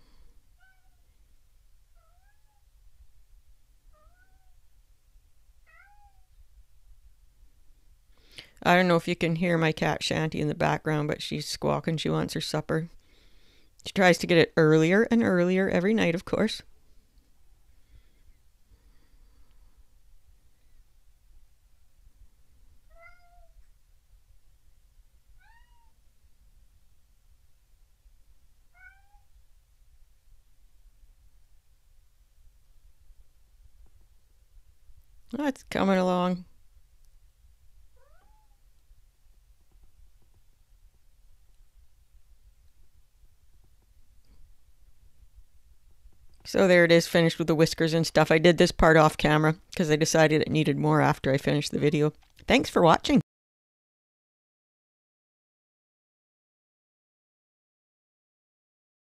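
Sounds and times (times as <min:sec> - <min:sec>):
cat meowing faintly: 0:00.6 - 0:01.1, 0:01.9 - 0:02.7, 0:03.9 - 0:04.6, 0:05.6 - 0:06.4, 0:22.9 - 0:23.7, 0:25.4 - 0:26.0, 0:28.7 - 0:29.4, 0:37.9 - 0:38.6.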